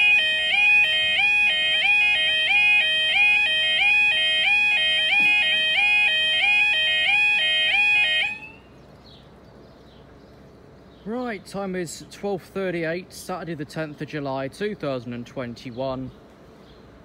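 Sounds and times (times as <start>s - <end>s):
two-tone warbling crossing alarm: 0.0s - 8.7s.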